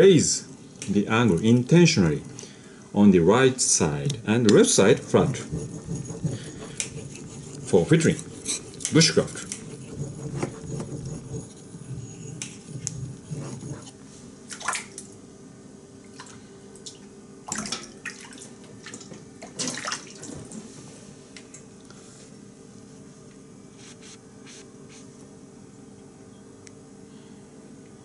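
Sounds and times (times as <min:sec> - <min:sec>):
knife stroked on whetstone: 0:04.5 - 0:14.0
water splashing in sink: 0:14.5 - 0:15.1, 0:17.5 - 0:20.6.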